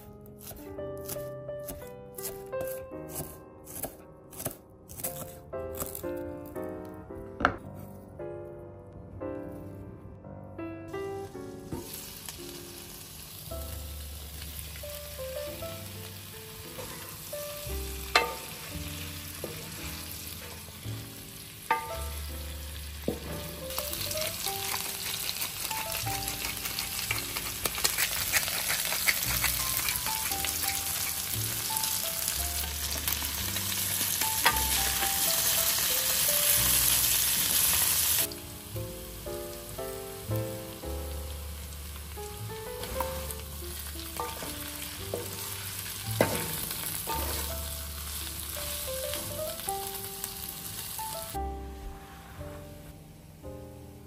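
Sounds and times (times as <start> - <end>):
soft background piano music: 0.0 - 54.0
food sizzling in a skillet: 11.6 - 51.4.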